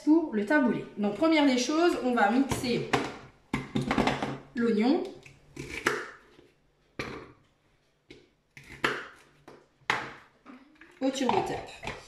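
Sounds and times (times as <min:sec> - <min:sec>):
knife cutting onion on mat: 0:05.5 - 0:06.4, 0:08.6 - 0:09.5.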